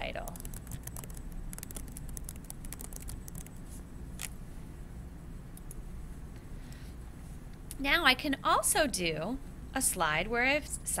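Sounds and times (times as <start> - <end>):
steady low hum: 0.0 - 11.0
computer keyboard key clicks: 0.3 - 3.5.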